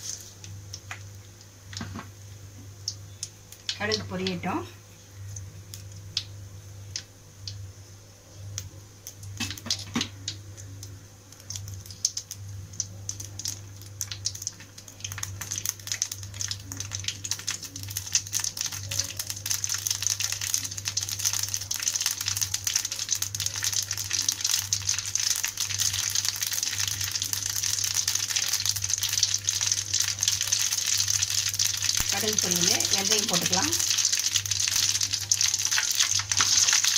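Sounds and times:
seeds popping in hot oil: 0.0 - 7.8, 8.4 - 36.9
low steady hum: 0.0 - 36.9.

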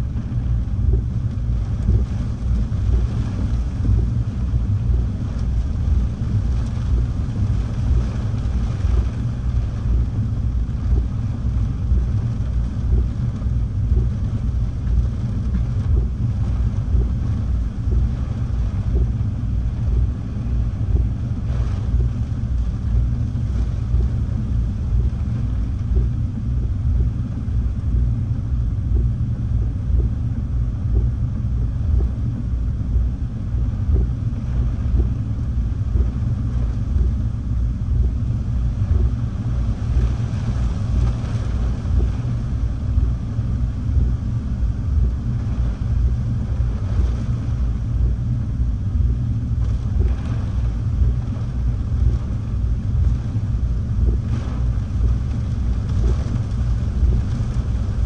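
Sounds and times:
wind buffeting microphone: 37.9 - 43.2.

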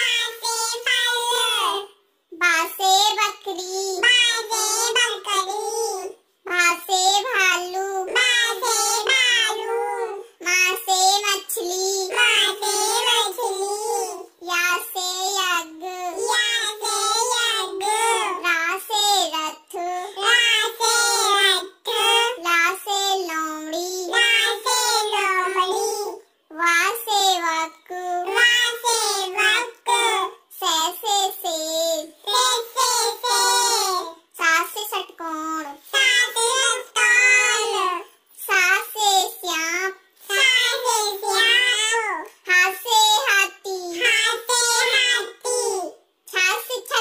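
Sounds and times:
child singing: 0.0 - 47.0.

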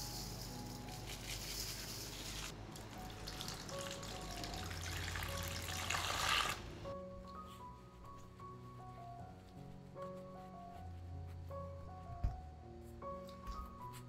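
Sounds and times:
soft background music: 0.0 - 14.0
water pouring into bowl: 2.8 - 6.6.

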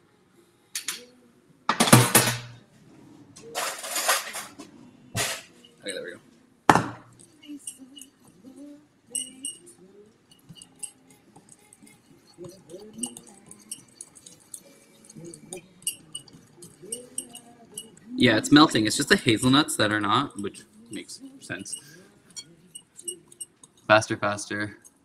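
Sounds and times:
metal utensil scraping ceramic bowl: 3.6 - 5.8, 9.1 - 23.9
faint voices: 7.2 - 24.8.

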